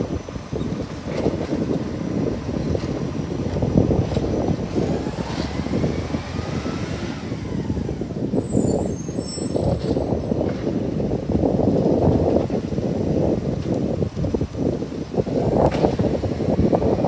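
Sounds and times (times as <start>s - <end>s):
wind buffeting microphone: 0.0s - 17.0s
heavy truck passing: 1.1s - 10.8s.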